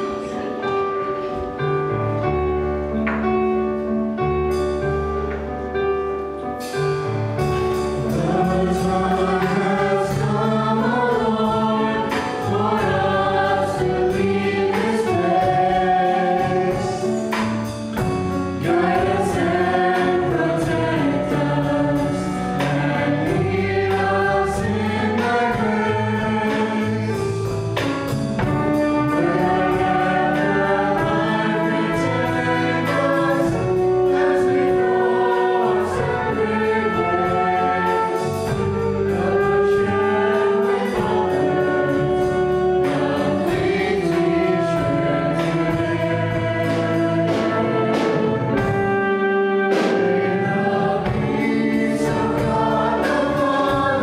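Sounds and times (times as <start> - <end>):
bass guitar: 0.0 - 54.0
keyboard: 0.0 - 54.0
drum kit beat: 6.6 - 54.0
vocal group singing in harmony: 7.8 - 27.6, 28.6 - 54.0.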